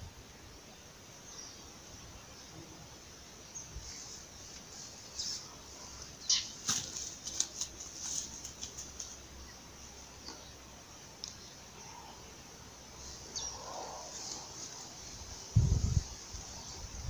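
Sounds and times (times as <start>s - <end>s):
fish flopping slaps and rustles: 6.6s - 9.0s.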